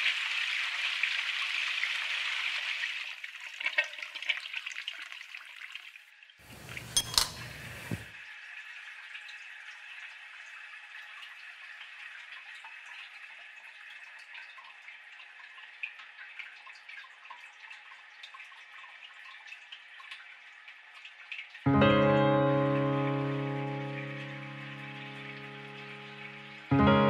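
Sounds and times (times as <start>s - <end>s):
tap water running into sink: 0.0s - 21.6s, 22.7s - 26.8s.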